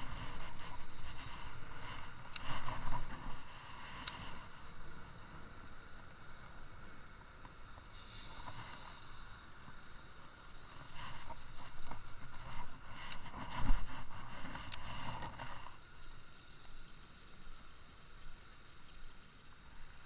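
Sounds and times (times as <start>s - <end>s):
fishing reel being cranked: 10.8s - 15.8s.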